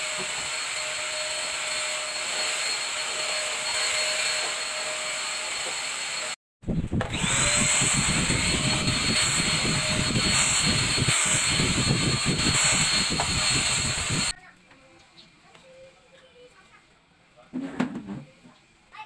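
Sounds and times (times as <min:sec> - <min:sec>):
vacuum cleaner motor whining: 0:00.0 - 0:14.4.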